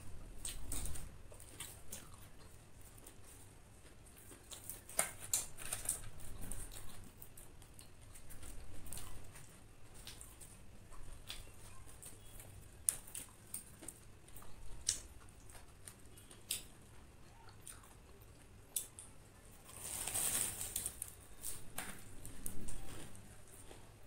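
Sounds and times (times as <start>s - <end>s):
crunching and chewing: 0.0s - 24.0s
lettuce leaves rustling: 19.6s - 23.6s.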